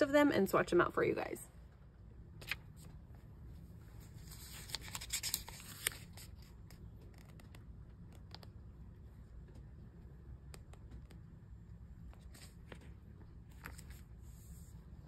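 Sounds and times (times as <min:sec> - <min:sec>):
paper pages rustling: 0:02.4 - 0:03.0, 0:03.9 - 0:08.6, 0:12.0 - 0:14.8.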